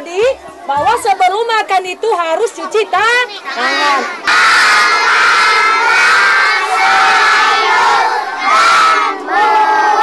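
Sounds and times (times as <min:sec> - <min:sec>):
children chanting in unison: 0:03.3 - 0:10.0.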